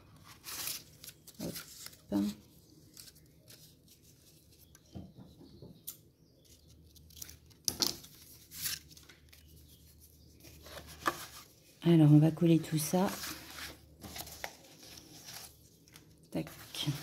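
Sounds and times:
paper strips rustling: 0:00.1 - 0:04.8, 0:06.4 - 0:11.5.

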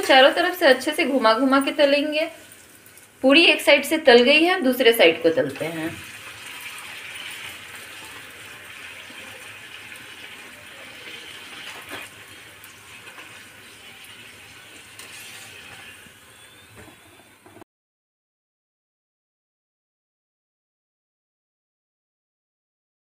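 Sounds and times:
deep-frying sizzle: 0:00.0 - 0:17.6.

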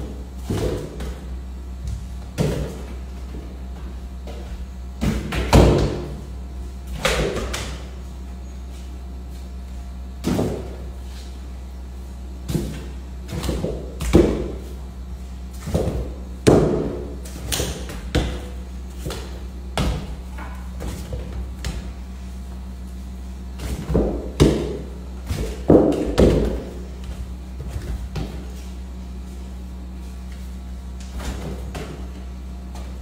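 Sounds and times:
ball thudding off floor and walls: 0:00.0 - 0:08.0, 0:10.2 - 0:11.0, 0:12.4 - 0:14.7, 0:15.5 - 0:22.0, 0:23.5 - 0:28.8, 0:30.9 - 0:33.0
steady low hum: 0:00.0 - 0:33.0.

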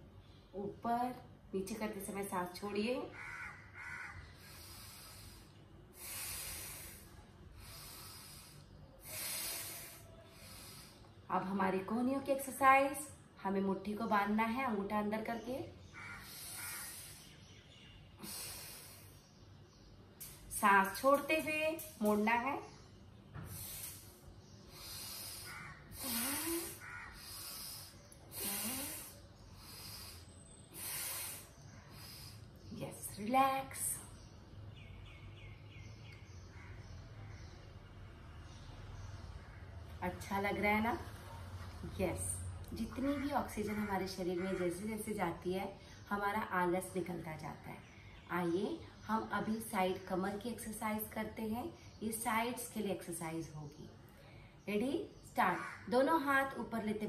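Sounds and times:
woman breathing deeply: 0:04.2 - 0:11.2, 0:16.0 - 0:19.4, 0:23.4 - 0:32.6.

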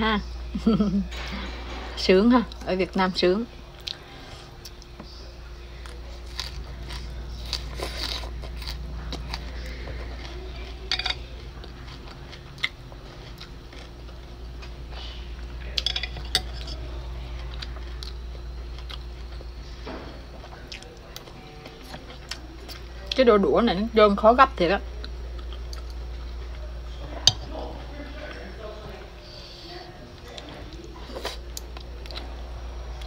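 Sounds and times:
steady low hum: 0:00.0 - 0:33.0
person chewing food: 0:03.7 - 0:05.0, 0:05.7 - 0:23.2, 0:25.0 - 0:27.5.

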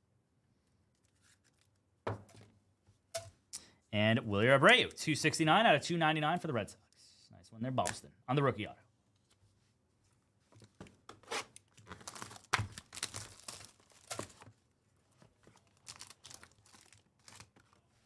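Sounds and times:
shrink wrap tearing: 0:11.2 - 0:14.5, 0:15.6 - 0:17.7
foil pack crinkling: 0:11.6 - 0:14.5, 0:15.4 - 0:17.8.

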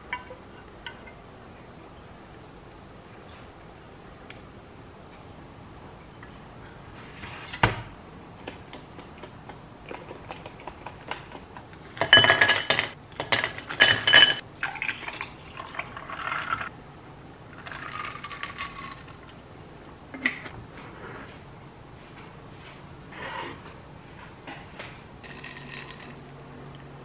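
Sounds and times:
ceramic plates clinking: 0:11.9 - 0:14.4.

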